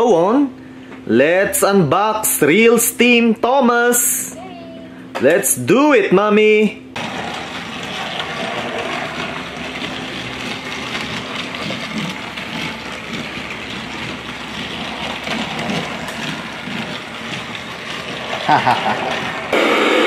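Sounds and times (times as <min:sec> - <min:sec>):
small electric motors whirring: 0:07.0 - 0:19.6
toy wheels rattling over track: 0:07.0 - 0:19.6.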